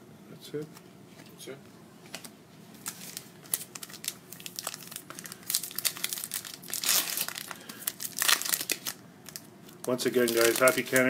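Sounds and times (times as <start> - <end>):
plastic wrapper tearing and crinkling: 2.2 - 11.0.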